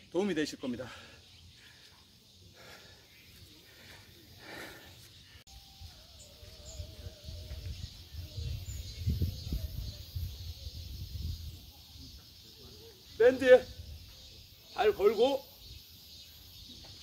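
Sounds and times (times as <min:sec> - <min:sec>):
wind rumbling on microphone: 0:05.8 - 0:12.1.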